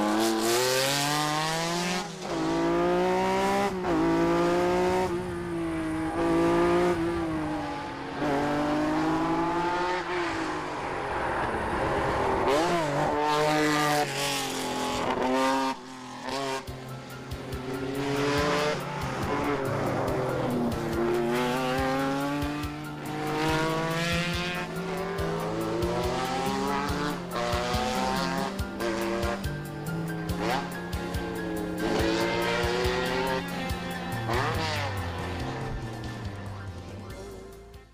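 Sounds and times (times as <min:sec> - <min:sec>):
car engine revving hard: 0:00.0 - 0:05.4, 0:18.0 - 0:29.4.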